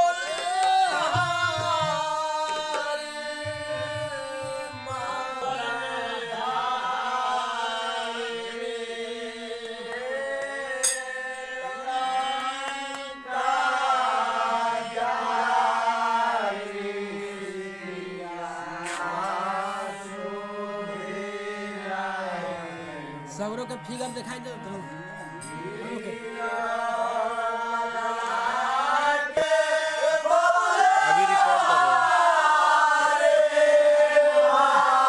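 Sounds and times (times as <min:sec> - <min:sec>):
person singing chant-like: 0:00.0 - 0:23.3, 0:24.9 - 0:35.0
hand drum beats: 0:00.3 - 0:02.8
steady drone: 0:10.8 - 0:34.9.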